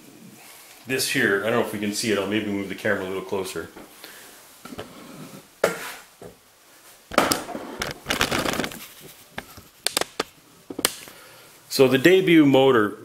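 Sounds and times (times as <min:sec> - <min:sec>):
rubbing and scraping: 0:07.4 - 0:10.1.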